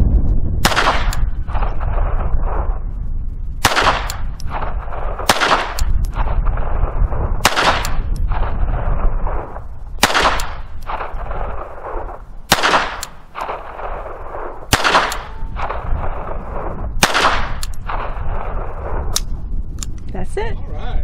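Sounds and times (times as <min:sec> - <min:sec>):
pistol shots with echo: 0:00.6 - 0:02.3, 0:03.6 - 0:06.7, 0:07.4 - 0:18.7.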